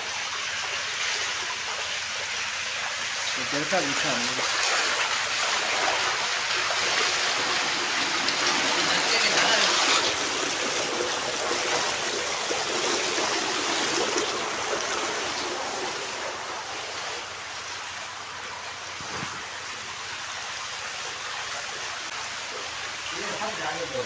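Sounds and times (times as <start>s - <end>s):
water rushing over weir: 0.0s - 24.0s.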